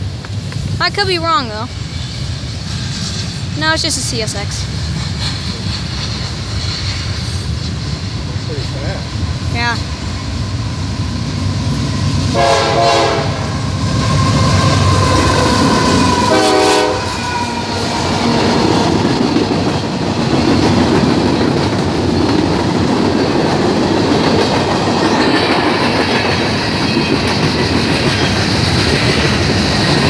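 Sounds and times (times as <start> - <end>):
diesel locomotives passing: 0.0 - 30.0
train horn chord: 12.3 - 13.6, 16.2 - 17.2
freight cars rumbling: 13.2 - 30.0.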